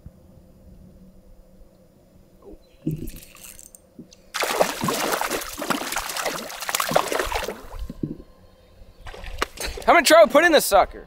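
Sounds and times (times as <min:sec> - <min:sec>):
fish splashing in water: 0:04.3 - 0:08.0.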